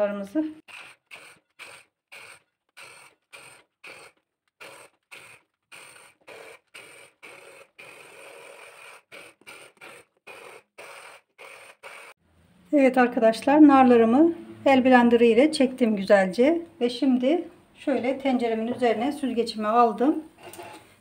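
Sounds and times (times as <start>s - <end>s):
electric hand blender running: 0.7s - 12.2s.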